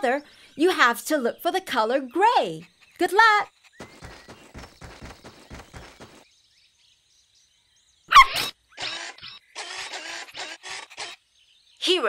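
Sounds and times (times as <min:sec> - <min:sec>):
light pattering footsteps: 0:02.9 - 0:06.3.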